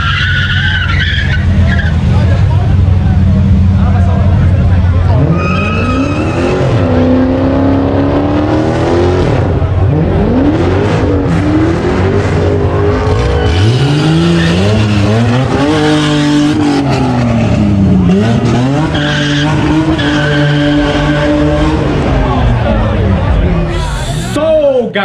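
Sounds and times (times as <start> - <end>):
tyres squealing: 0.0 - 2.1, 5.2 - 7.0
car engine revving: 0.0 - 24.4.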